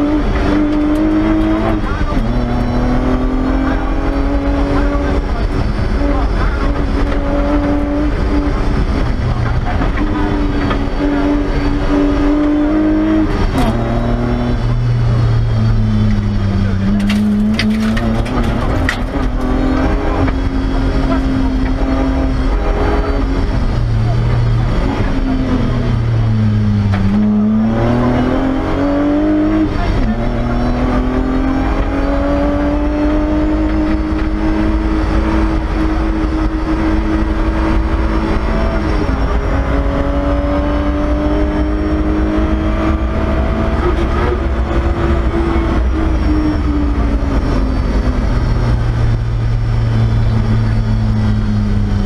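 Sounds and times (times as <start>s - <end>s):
gear shifts: 0.0s - 28.8s
car engine at full throttle: 0.0s - 52.0s.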